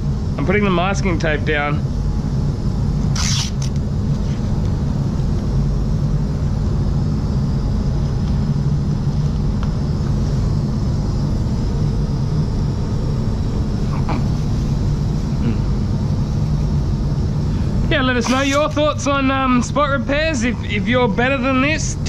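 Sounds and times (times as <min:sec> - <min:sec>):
steady low rumble: 0:00.0 - 0:22.0
masking tape pulled off roll: 0:03.1 - 0:03.8.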